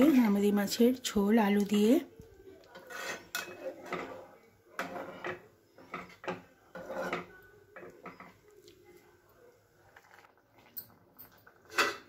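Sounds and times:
spatula scraping through gravy: 2.6 - 7.3.

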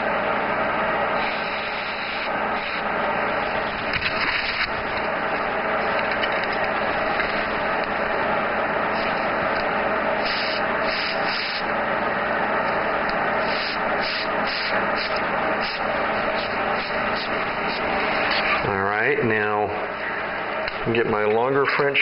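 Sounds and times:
airbrush hissing: 1.2 - 2.9, 8.9 - 9.4, 10.2 - 11.7, 13.2 - 18.6.

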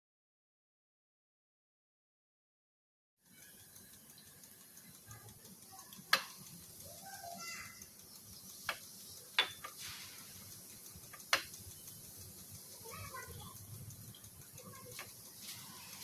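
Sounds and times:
brush clicking against ceramic: 3.3 - 16.0.

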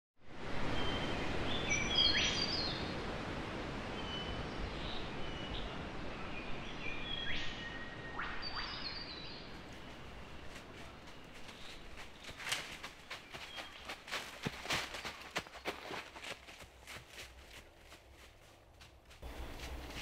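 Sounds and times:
steady outdoor hiss: 0.2 - 20.0
birds chirping: 3.9 - 16.9.

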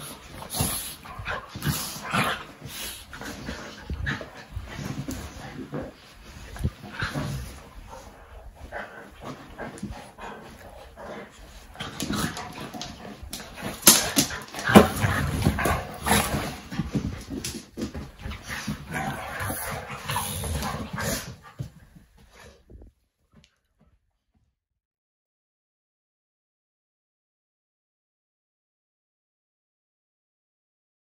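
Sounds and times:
dogs scuffling: 0.0 - 23.0.

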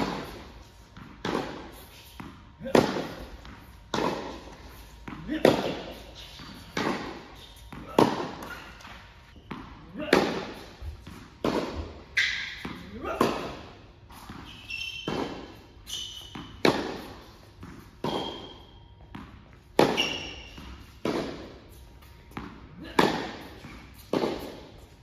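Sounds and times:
tennis ball struck by racket: 0.0 - 8.6, 9.4 - 13.6, 15.0 - 15.5, 16.3 - 18.5, 19.1 - 21.6, 22.3 - 24.8
tennis ball bouncing on court: 0.0 - 15.6, 16.2 - 24.9
shoe squeaks on court: 12.1 - 12.6, 14.1 - 17.1, 18.1 - 19.0, 19.8 - 21.0.

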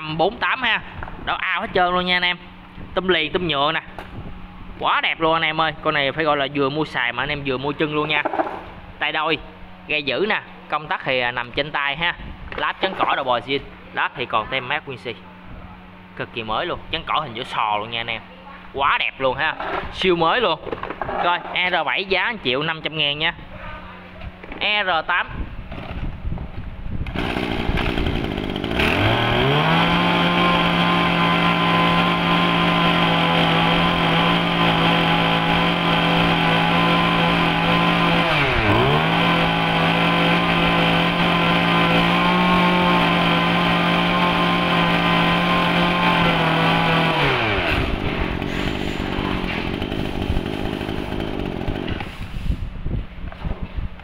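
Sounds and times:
brush cutter engine running: 27.0 - 52.4.

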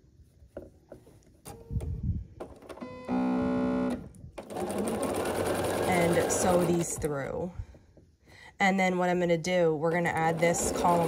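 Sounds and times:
sewing machine stitching: 3.8 - 7.1, 10.0 - 11.0.

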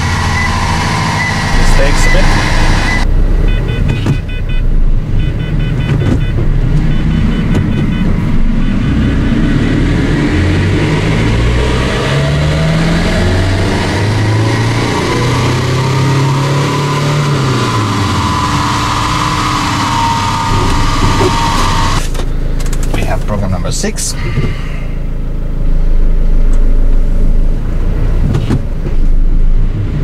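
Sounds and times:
electronic beeps: 1.2 - 4.6.

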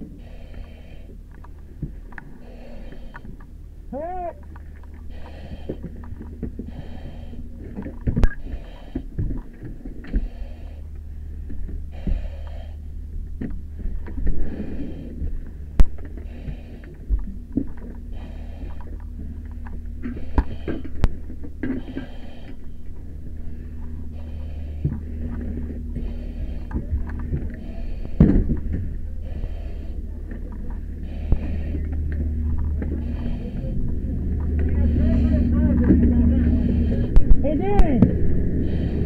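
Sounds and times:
hissing breath through mask regulator: 0.0 - 1.2, 2.3 - 3.4, 5.0 - 6.0, 6.6 - 9.2, 10.0 - 11.0, 11.9 - 12.9, 14.2 - 33.9, 38.5 - 39.0
steady low hum: 0.0 - 39.0.

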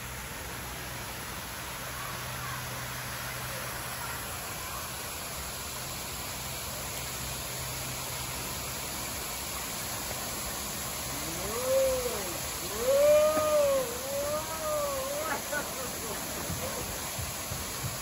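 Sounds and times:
water rushing from waterfall: 0.0 - 18.0
child calling out: 11.1 - 16.0.

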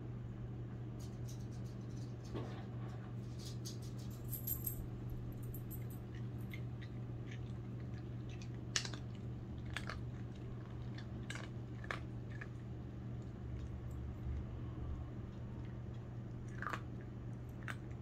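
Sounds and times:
steady low hum: 0.0 - 18.0
dog crunching kibble: 5.4 - 14.4, 15.4 - 18.0.

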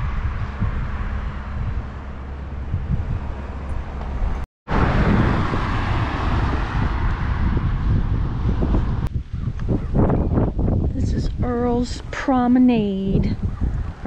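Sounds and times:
car passing: 0.0 - 9.1
wind buffeting microphone: 0.0 - 14.0.

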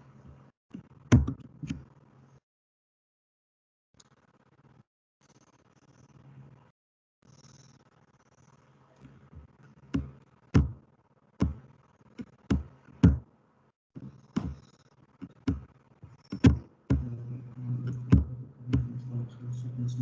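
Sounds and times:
sharp irregular knocks: 9.9 - 10.8, 11.4 - 13.3, 14.0 - 17.1
low hum: 16.9 - 20.0.

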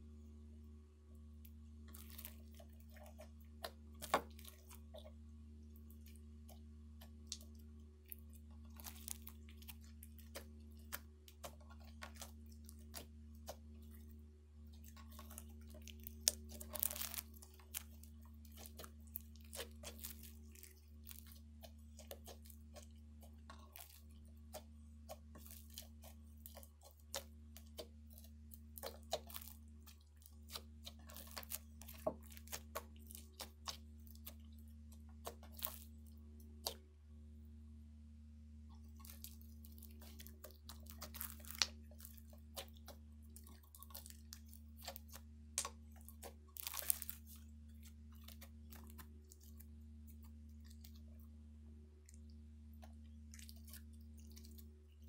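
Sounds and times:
low hum: 0.0 - 55.0
slime clicking and popping: 7.0 - 13.6, 14.8 - 36.8, 39.0 - 47.4.

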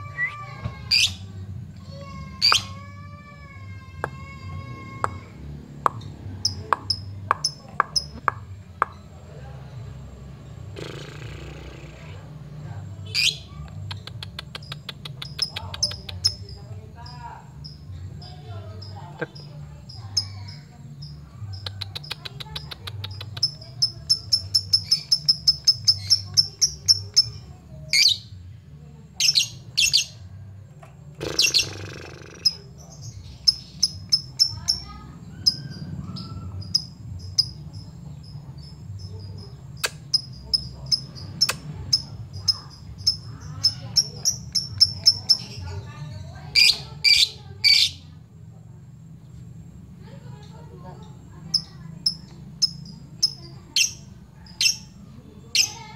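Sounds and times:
harsh bird calls: 0.0 - 1.4, 31.2 - 48.2
bird chirping: 10.5 - 28.4, 31.2 - 48.2, 50.0 - 55.9.

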